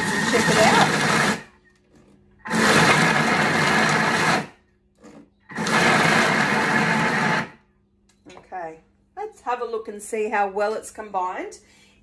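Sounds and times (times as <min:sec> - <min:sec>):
food processor motor pulsing: 0:00.0 - 0:01.5, 0:02.4 - 0:04.6, 0:05.4 - 0:07.6.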